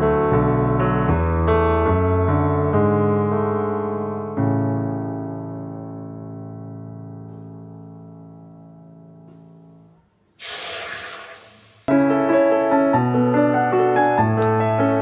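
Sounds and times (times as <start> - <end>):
background piano music: 0.0 - 10.2, 11.9 - 15.0
water poured into wok splashing: 10.4 - 11.9.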